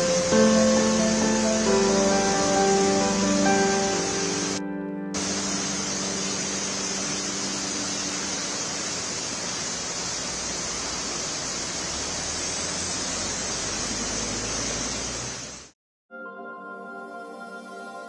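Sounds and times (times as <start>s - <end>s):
heavy rain pouring: 0.0s - 4.6s, 5.2s - 15.7s
electronic music jingle: 0.0s - 8.1s.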